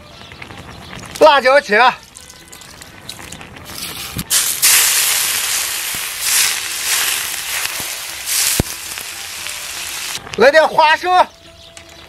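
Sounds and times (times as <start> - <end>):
hot oil sizzling loudly: 0.9 - 10.2.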